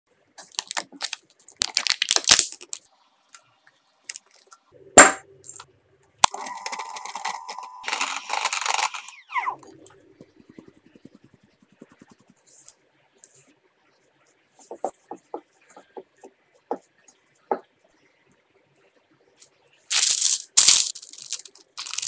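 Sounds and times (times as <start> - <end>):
paper wrapper crinkling: 0.4 - 2.8, 6.2 - 9.3, 19.9 - 22.0.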